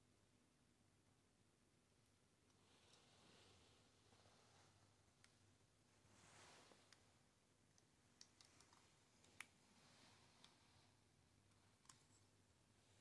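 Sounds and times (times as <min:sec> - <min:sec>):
hands rustling: 0:06.0 - 0:07.2.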